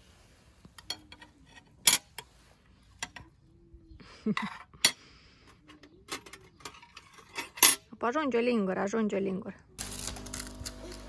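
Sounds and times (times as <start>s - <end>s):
dishes and cutlery clinking: 0.8s - 2.3s.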